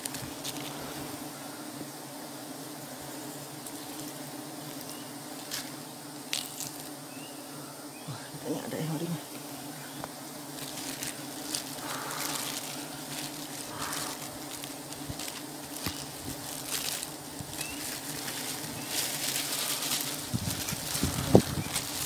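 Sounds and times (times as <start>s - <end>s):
bees buzzing: 0.0s - 22.0s
plastic bag crinkling: 10.5s - 22.0s.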